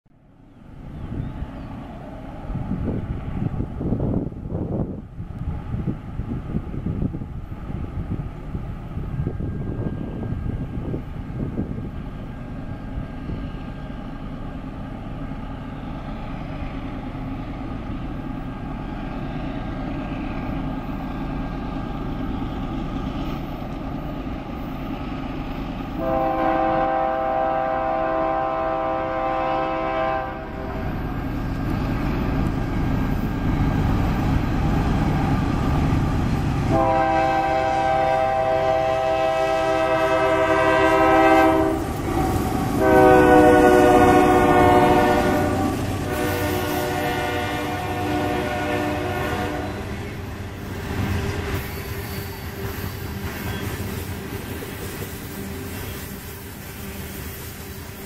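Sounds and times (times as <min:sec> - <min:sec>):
locomotive engine rumble: 0:00.2 - 0:58.0
locomotive air horn blasts: 0:26.0 - 0:30.8, 0:36.7 - 0:49.9.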